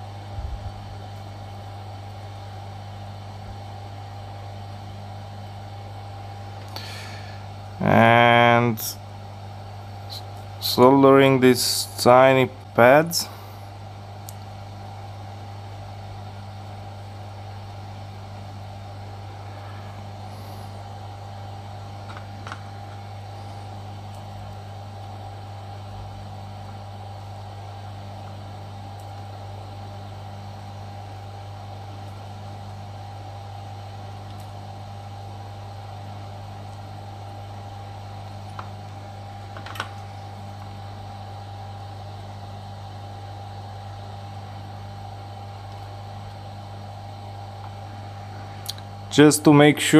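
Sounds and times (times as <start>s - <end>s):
electrical hum: 0.0s - 49.9s
fan whir: 0.0s - 49.9s.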